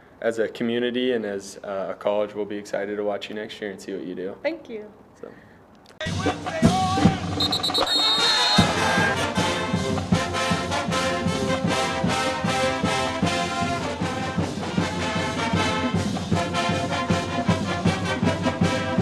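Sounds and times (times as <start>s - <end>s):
driving beat: 6.0s - 19.0s
upbeat brass theme music: 6.0s - 19.0s.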